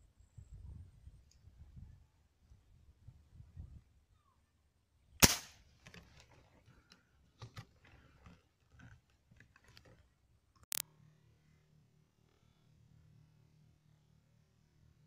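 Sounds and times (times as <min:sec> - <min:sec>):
airgun shot crack: 0:05.2 - 0:05.6
handling clicks and knocks: 0:05.8 - 0:10.0.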